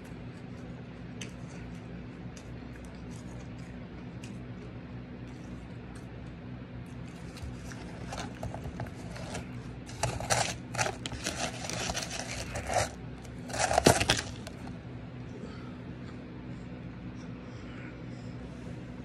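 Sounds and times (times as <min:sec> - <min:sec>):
metal spoon scraping shaved ice: 0:07.6 - 0:14.7.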